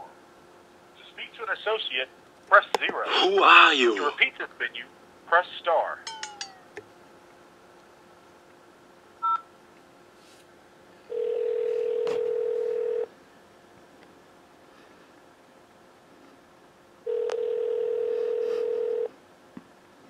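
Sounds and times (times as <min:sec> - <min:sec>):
phone ringback tone: 0:11.1 - 0:13.1, 0:17.1 - 0:19.1.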